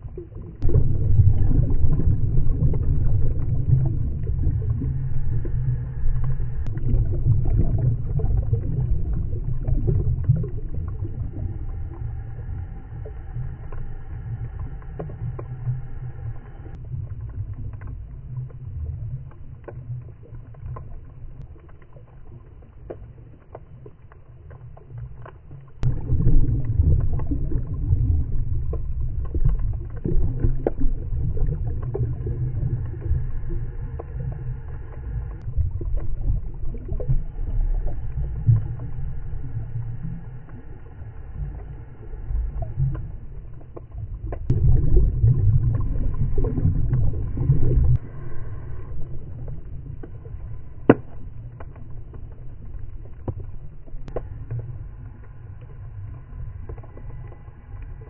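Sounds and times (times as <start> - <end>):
muffled underwater rumble: 0.0 - 58.0
clicks and crackles: 13.6 - 44.9, 49.0 - 58.0.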